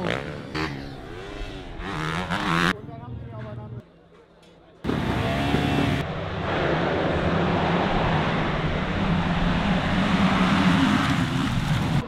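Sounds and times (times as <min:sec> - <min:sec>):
motorcycle engines droning: 0:00.0 - 0:03.8, 0:04.8 - 0:12.0
loud rushing noise: 0:04.9 - 0:12.0.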